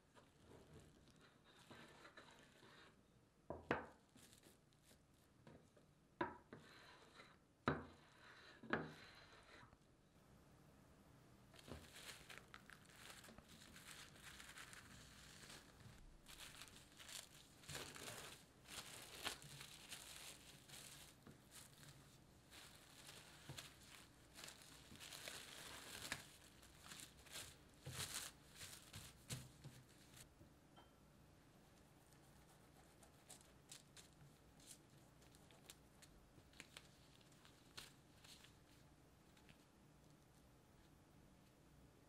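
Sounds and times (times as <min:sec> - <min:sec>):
plastic cling wrap crinkling: 0:11.5 - 0:30.3, 0:33.2 - 0:39.6.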